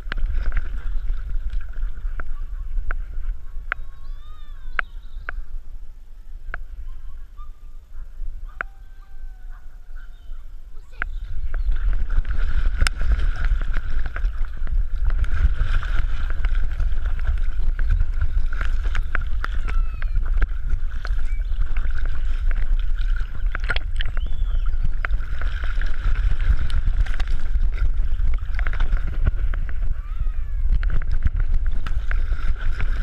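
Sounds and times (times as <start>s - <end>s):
water sloshing and gurgling: 0.0s - 33.0s
splash clicks: 10.9s - 29.8s.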